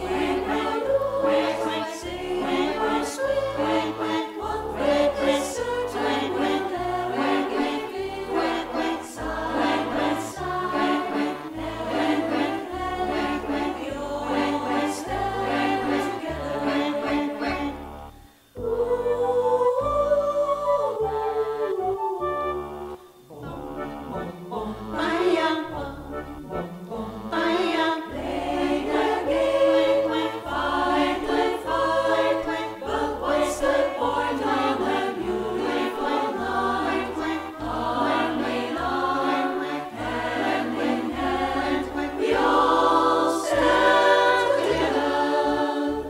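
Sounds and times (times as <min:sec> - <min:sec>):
women's choir singing: 0:00.0 - 0:17.9, 0:18.5 - 0:46.0
low bass notes: 0:22.4 - 0:25.0.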